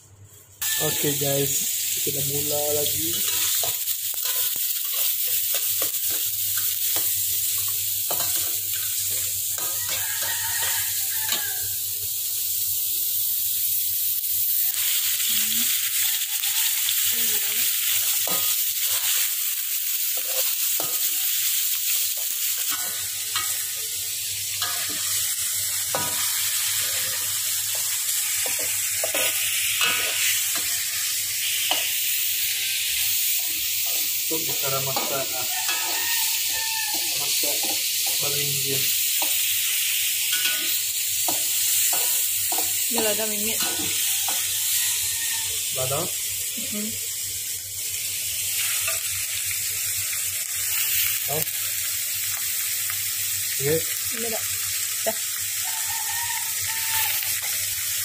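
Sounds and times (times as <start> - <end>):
meat sizzling in oil: 0.4 - 58.0
metal spatula scraping wok: 2.9 - 11.6, 17.8 - 19.3, 20.1 - 45.7.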